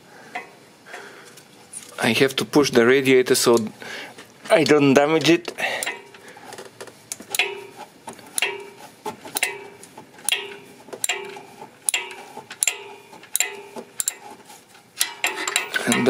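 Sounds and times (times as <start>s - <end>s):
ratchet wrench clicking: 11.9s - 14.2s, 15.0s - 16.0s.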